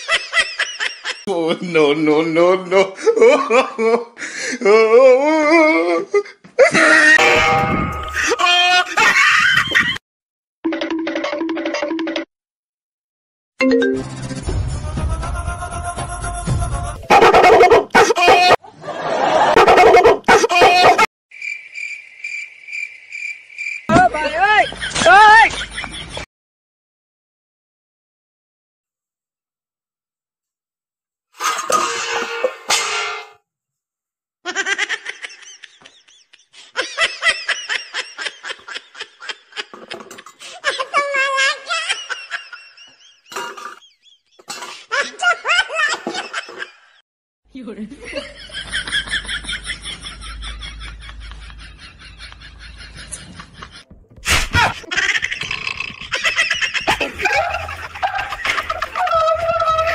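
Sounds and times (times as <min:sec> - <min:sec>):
laughter in bursts: 0:00.0 - 0:01.3, 0:02.6 - 0:04.9, 0:08.2 - 0:10.0, 0:15.1 - 0:21.1, 0:24.4 - 0:26.3, 0:34.5 - 0:47.0, 0:48.0 - 0:53.9, 0:54.5 - 0:59.9
metal clattering crash: 0:07.2 - 0:08.4, 0:31.4 - 0:33.4.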